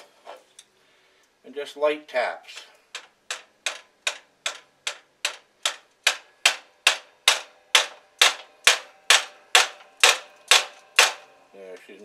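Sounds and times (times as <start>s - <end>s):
hammer tapping metal pin: 2.9s - 11.2s.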